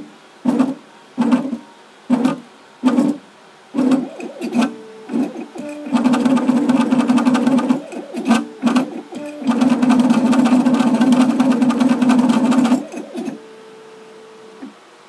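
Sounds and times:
engraving machine motor buzzing: 3.8s - 14.7s.

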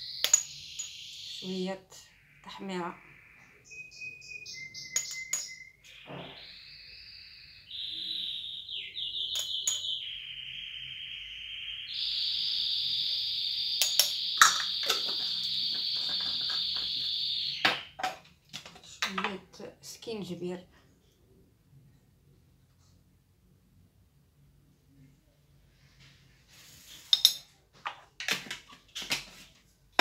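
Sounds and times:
songbird singing high trills: 0.0s - 17.6s.

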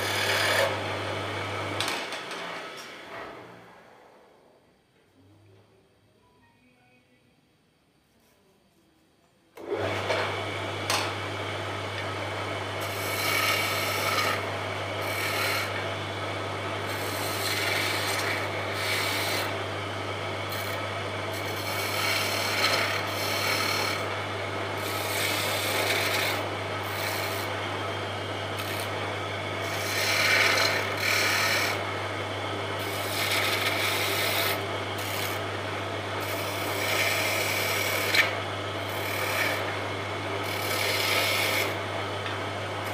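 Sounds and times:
metal tool scraping spinning wood: 0.0s - 0.8s, 12.8s - 15.9s, 16.8s - 19.6s, 20.5s - 24.2s, 24.8s - 27.6s, 28.4s - 29.0s, 29.6s - 31.8s, 32.8s - 35.5s, 36.2s - 39.8s, 40.4s - 42.9s
wood lathe humming: 0.0s - 3.1s, 9.6s - 42.9s.

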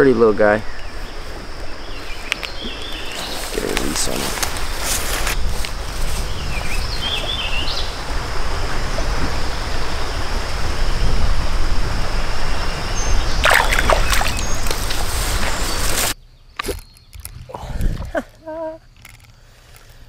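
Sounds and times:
bird chirping: 0.0s - 4.9s, 5.7s - 8.3s, 12.5s - 19.1s
creek water rippling: 0.8s - 10.7s, 13.0s - 16.2s
fish splashing into water: 13.4s - 16.1s.

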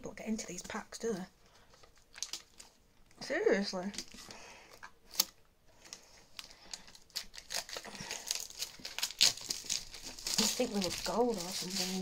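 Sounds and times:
wrapping torn and crinkled: 1.6s - 2.8s, 5.1s - 12.0s.

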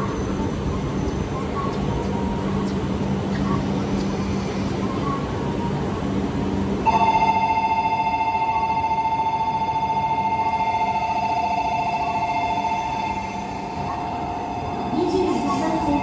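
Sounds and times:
train humming at platform: 0.0s - 16.0s
electronic departure bell ringing: 6.8s - 15.4s.

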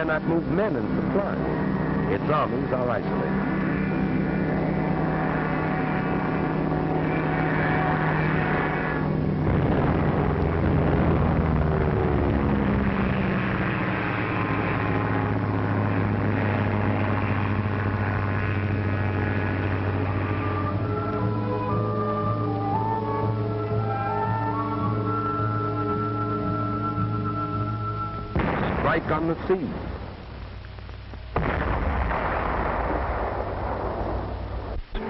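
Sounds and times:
propeller aircraft engines droning: 0.0s - 35.0s.

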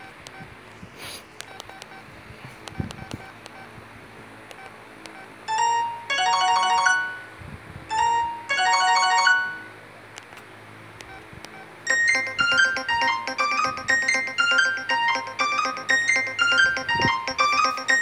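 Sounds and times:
electronic ringtone melody: 5.5s - 7.3s, 7.9s - 9.8s, 11.9s - 18.0s
fast electronic phone ringtone: 5.5s - 7.3s, 7.9s - 9.7s, 11.9s - 18.0s.

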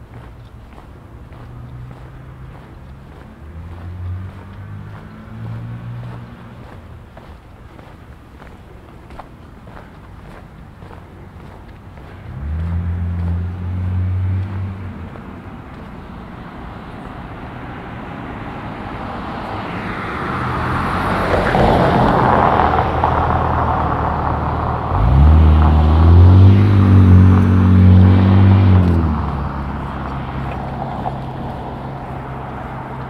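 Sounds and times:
truck passing close by: 1.4s - 7.3s, 10.8s - 33.0s
loud low engine rumble: 9.8s - 33.0s.

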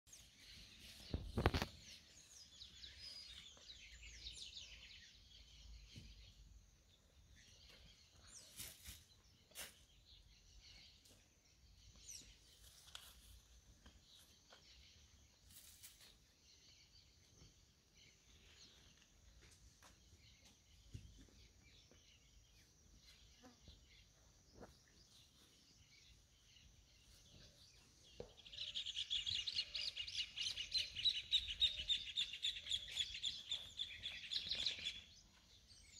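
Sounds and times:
faint birds chirping: 0.1s - 35.9s
loud rapid bird chirping: 26.0s - 35.9s.

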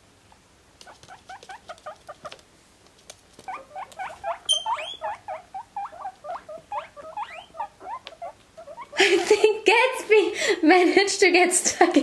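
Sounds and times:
guinea pig squeaking: 0.8s - 2.4s, 3.4s - 9.1s.

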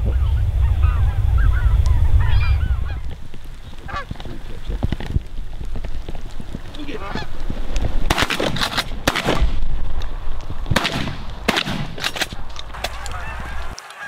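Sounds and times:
wind rumble on microphone: 0.0s - 13.8s
goose honking: 0.2s - 3.1s, 3.8s - 4.2s, 6.8s - 7.4s, 12.8s - 14.0s.

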